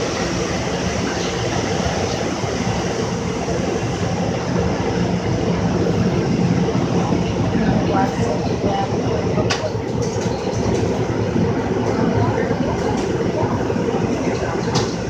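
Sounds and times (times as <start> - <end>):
car wash dryer blowers roaring: 0.0 - 15.0.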